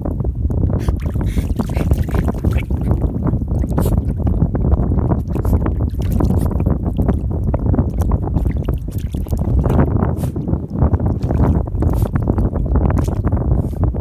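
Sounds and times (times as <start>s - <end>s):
wind buffeting microphone: 0.0s - 14.0s
dog splashing in water: 0.9s - 4.4s, 5.0s - 7.2s, 7.9s - 9.9s, 11.1s - 13.2s.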